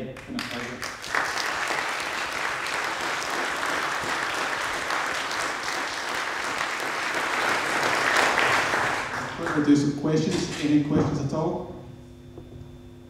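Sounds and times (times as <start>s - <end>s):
audience applauding: 0.2s - 9.9s.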